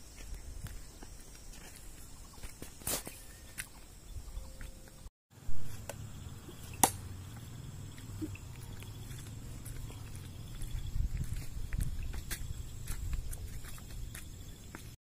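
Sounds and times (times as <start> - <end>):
blade striking wooden target: 6.8 - 7.0.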